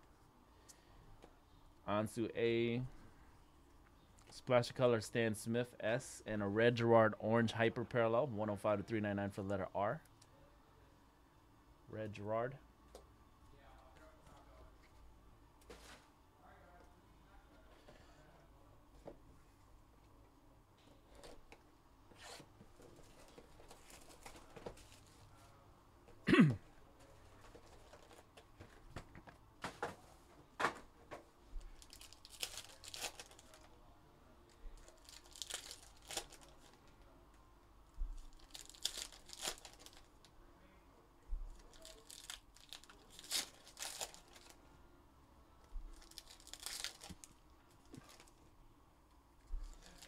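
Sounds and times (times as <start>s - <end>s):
card wrappers tearing and crinkling: 31.8s - 33.7s, 34.8s - 36.8s, 38.3s - 40.1s, 41.6s - 44.6s, 46.0s - 48.4s, 49.6s - 50.0s.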